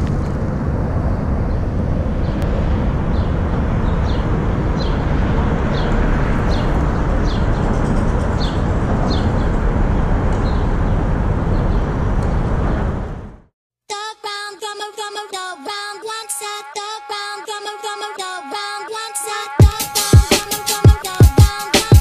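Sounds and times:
city traffic rumble: 0.0 - 13.5.

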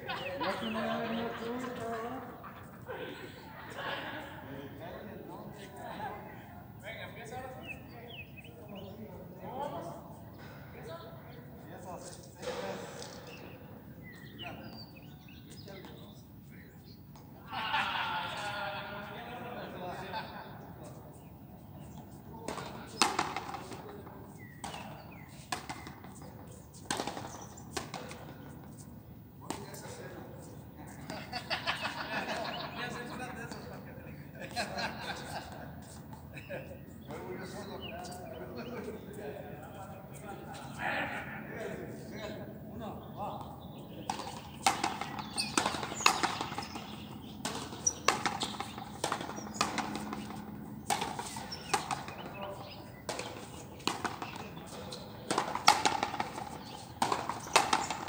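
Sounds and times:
rubber ball struck by rackets: 26.9 - 28.2, 44.0 - 58.0.

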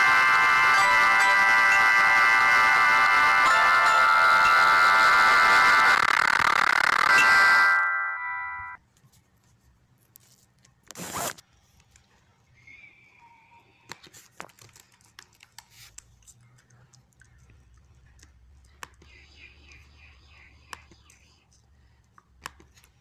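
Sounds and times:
tune: 0.0 - 8.8
faint clicks and rustles: 13.8 - 19.1.

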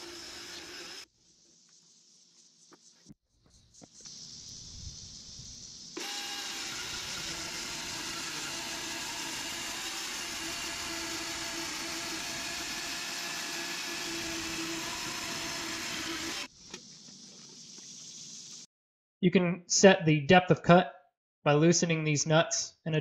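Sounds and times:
electric chainsaw cutting log: 0.0 - 1.1, 6.0 - 16.5.

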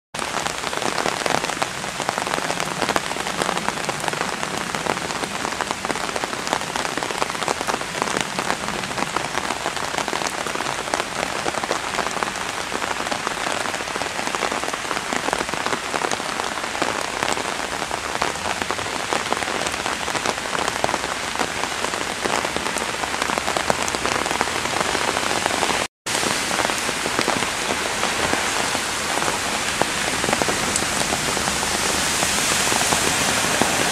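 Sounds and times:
heavy rain splashing in water: 0.2 - 33.9.

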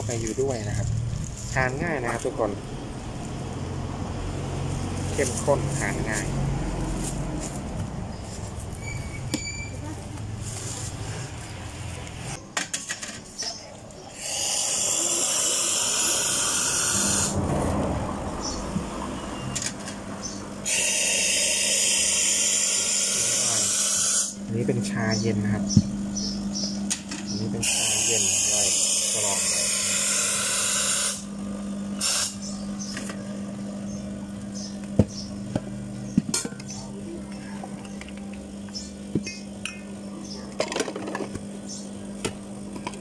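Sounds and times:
espresso steam wand hissing: 14.1 - 17.4, 20.6 - 24.4, 27.5 - 33.0
small appliance motor whirring: 14.1 - 17.4, 20.2 - 36.8, 37.8 - 43.0.

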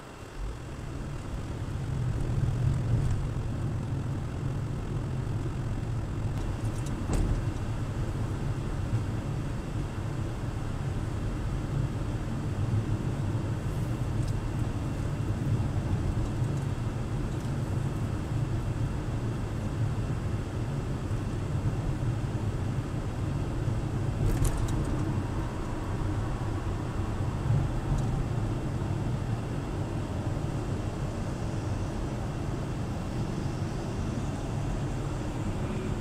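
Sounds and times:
car driving heard from cabin: 0.0 - 36.0.

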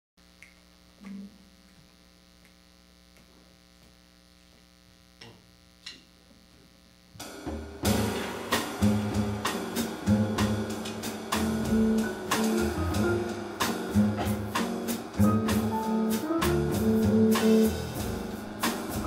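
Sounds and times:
electrical mains hum: 0.2 - 19.0
jazz combo playing bossa nova: 7.2 - 19.0.

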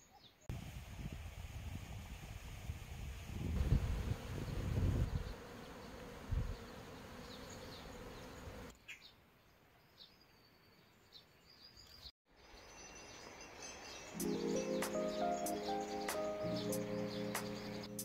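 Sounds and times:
bees buzzing: 3.6 - 8.7
bird chirps: 9.8 - 18.0.

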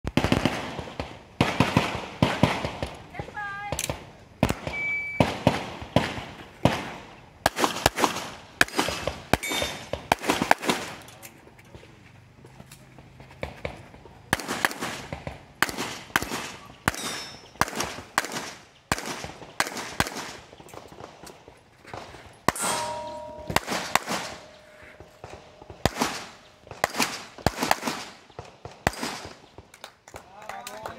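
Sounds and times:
pistol shots ringing: 4.4 - 11.0, 14.3 - 20.4, 22.5 - 29.4.

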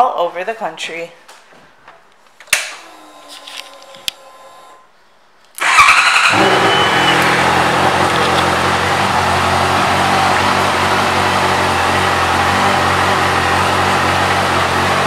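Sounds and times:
motorcycle engine starting and idling: 5.6 - 15.0.

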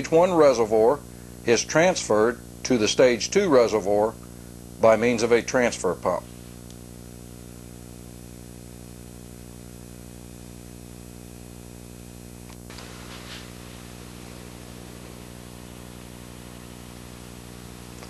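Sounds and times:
electrical mains hum: 0.0 - 18.0
faint noise: 12.6 - 18.0
hiss: 12.7 - 17.4.

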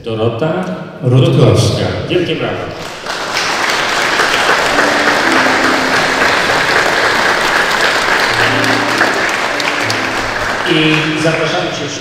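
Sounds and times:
audience applauding: 2.8 - 12.0.

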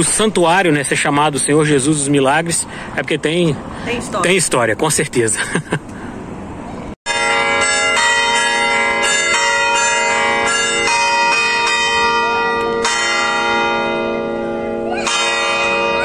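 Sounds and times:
church bells ringing: 7.1 - 16.0.

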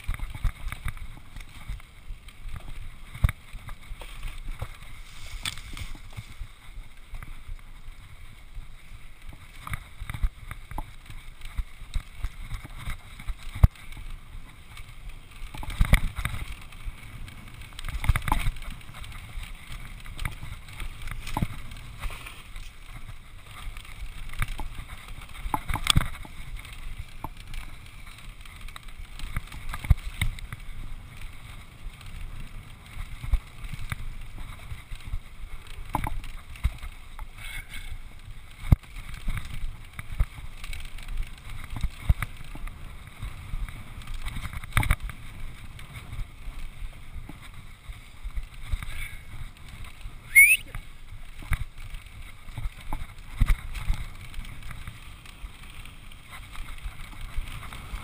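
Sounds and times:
bike knocking and rattling: 0.0 - 58.0
bike tyres rumbling: 0.0 - 58.0.

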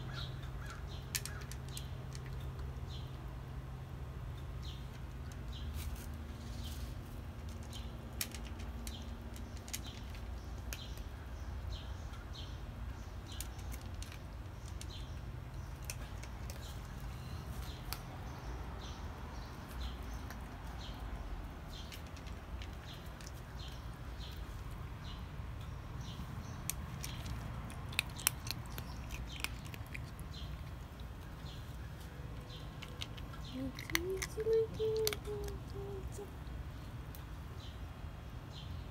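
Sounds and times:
low outdoor hum: 0.0 - 38.9
cat crunching dry kibble: 1.0 - 2.7, 4.9 - 11.1, 13.2 - 25.0, 26.1 - 35.8
bird chirping: 8.8 - 37.0.

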